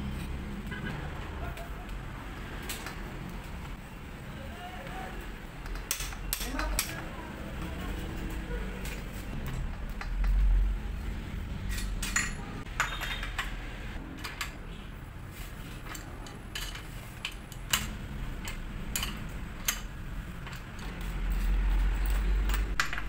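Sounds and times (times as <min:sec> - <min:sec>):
metal tools clicking and tapping: 0:02.6 - 0:03.4, 0:05.6 - 0:07.2, 0:08.8 - 0:10.6, 0:11.6 - 0:13.6, 0:15.8 - 0:23.0.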